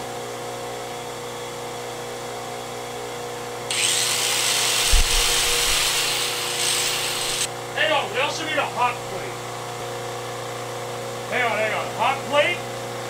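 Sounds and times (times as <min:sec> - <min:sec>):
electrical hum of appliances: 0:00.0 - 0:13.0
power tool whirring: 0:03.7 - 0:07.5
low thump: 0:04.8 - 0:05.6.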